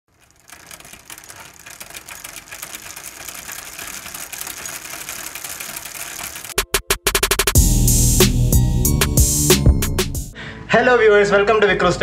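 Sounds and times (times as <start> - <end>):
rapid crackling clicks: 0.1 - 7.6.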